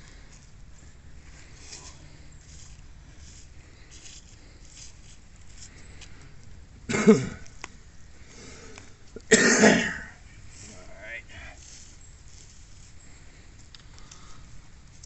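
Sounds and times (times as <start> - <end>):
man coughing: 6.9 - 7.4, 9.3 - 10.2.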